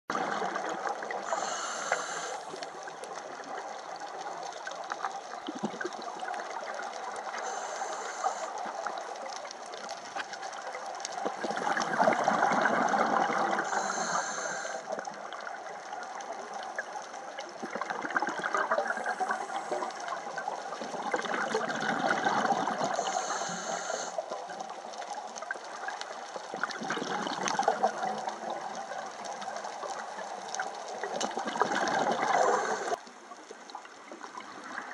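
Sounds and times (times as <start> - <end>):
exhale bubbling gurgle: 0.1 - 34.9
underwater rush: 0.1 - 34.9
regulator inhale hiss: 1.2 - 2.8, 7.3 - 8.8, 13.6 - 15.0, 18.8 - 20.0, 22.9 - 24.3, 32.3 - 33.0.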